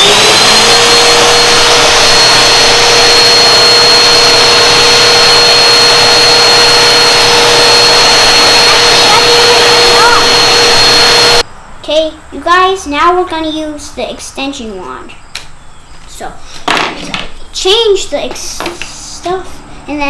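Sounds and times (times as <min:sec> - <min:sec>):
vacuum cleaner running: 0:00.0 - 0:11.4.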